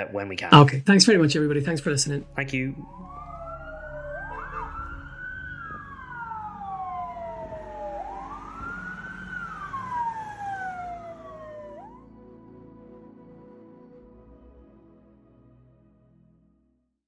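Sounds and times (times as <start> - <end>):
emergency siren wailing: 1.7 - 13.4.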